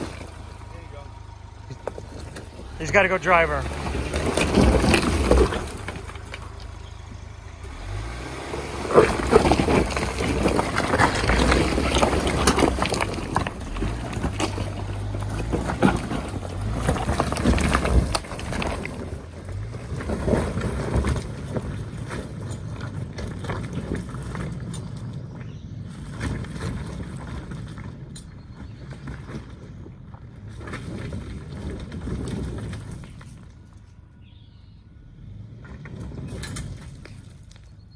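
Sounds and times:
tyres crunching over rocks: 0.0s - 34.5s, 35.1s - 37.9s
truck engine under load: 0.0s - 37.9s
stones clattering: 1.6s - 3.0s, 3.8s - 6.9s, 8.8s - 25.6s.

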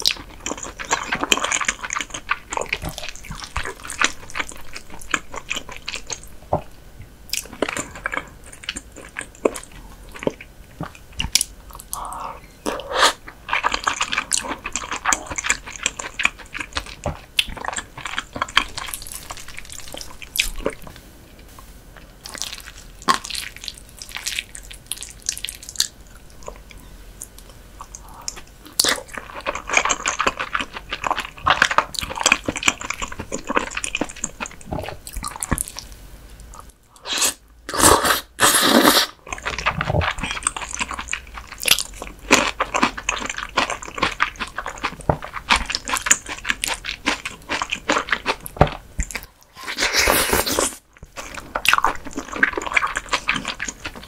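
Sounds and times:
wet chewing and biting: 39.2s - 54.0s.

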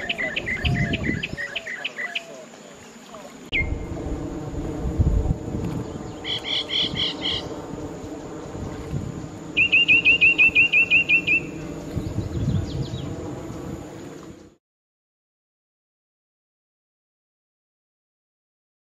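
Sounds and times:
birds chirping: 0.0s - 3.9s, 5.7s - 8.5s, 9.3s - 14.6s
thin high tone: 3.5s - 14.0s
steady low hum: 3.5s - 14.6s.

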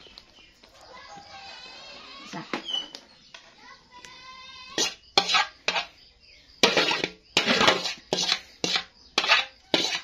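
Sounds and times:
ladle scraping metal pot: 4.7s - 6.0s, 6.6s - 10.0s.

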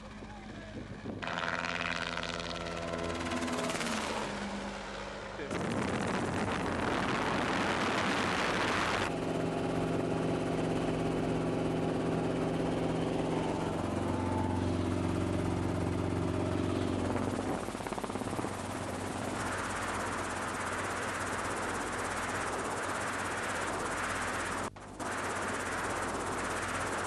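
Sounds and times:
helicopter engine and rotor drone: 0.0s - 27.0s
rushing noise: 16.6s - 27.0s.

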